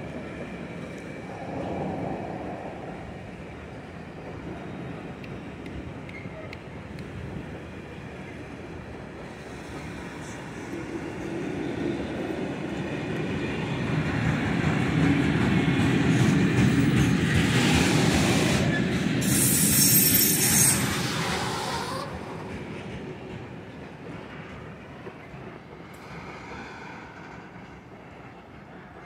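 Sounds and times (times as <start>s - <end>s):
freight train rolling past: 0.0s - 29.0s
wheel squeal: 18.7s - 22.1s.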